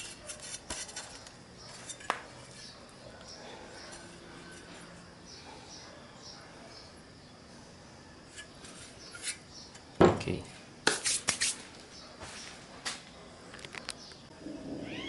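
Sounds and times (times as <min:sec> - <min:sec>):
heavy metal housing thud on workbench: 0:10.0 - 0:10.3.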